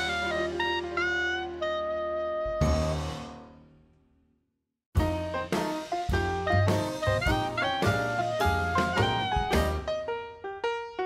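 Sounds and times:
drums: 0:00.0 - 0:01.6, 0:02.5 - 0:03.6, 0:05.0 - 0:10.1
held horn-like notes: 0:00.0 - 0:02.9
jazz music: 0:00.0 - 0:03.6, 0:05.0 - 0:11.0.

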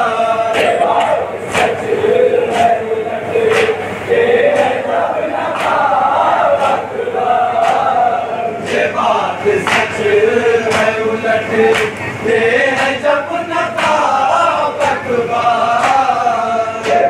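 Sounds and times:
men chanting a lament: 0:00.0 - 0:17.0.

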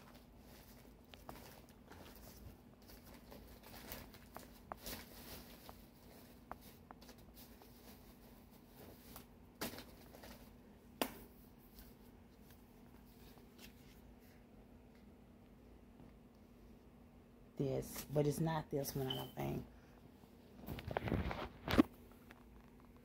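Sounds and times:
hands rummaging through palettes: 0:00.0 - 0:10.6.

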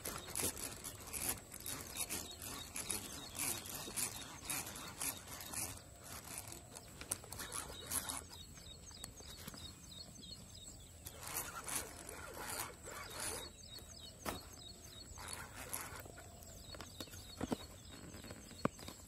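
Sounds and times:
fishing reel whirring: 0:00.0 - 0:08.4, 0:11.0 - 0:13.6.

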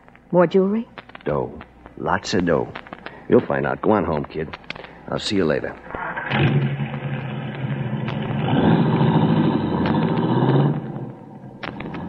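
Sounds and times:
vehicle engine running: 0:06.0 - 0:12.0.

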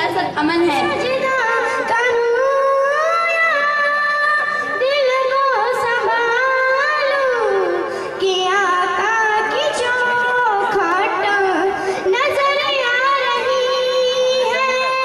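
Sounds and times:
girl singing into a microphone: 0:00.2 - 0:15.0.

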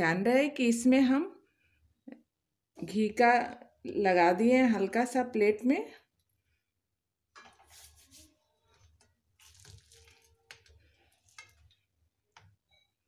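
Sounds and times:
hands handling sticky mixture: 0:07.5 - 0:12.7.

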